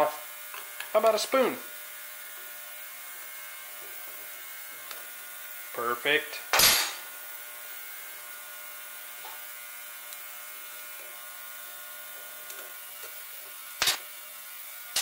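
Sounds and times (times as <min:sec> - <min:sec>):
electrical buzzing hum: 0:00.0 - 0:15.0
sharp metallic click: 0:06.6 - 0:07.0.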